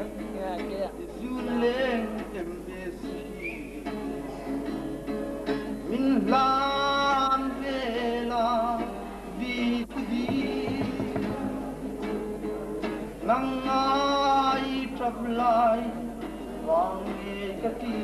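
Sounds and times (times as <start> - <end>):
acoustic guitar: 0.0 - 18.0
man singing: 1.0 - 3.6, 5.6 - 11.8, 13.2 - 18.0.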